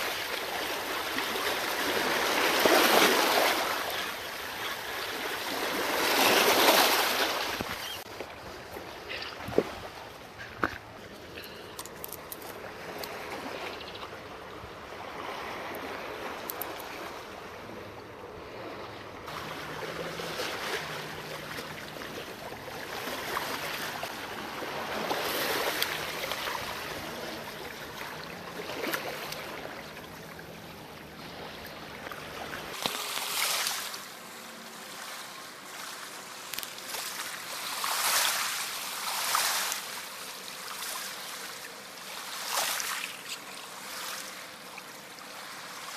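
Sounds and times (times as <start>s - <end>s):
waves splashing over rocks: 0.0s - 8.0s, 18.6s - 45.9s.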